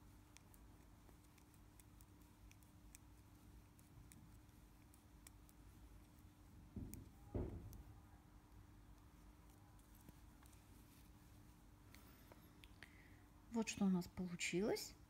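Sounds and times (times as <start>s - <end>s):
knitting needles clicking: 0.0s - 10.9s
low steady hum: 0.0s - 15.0s.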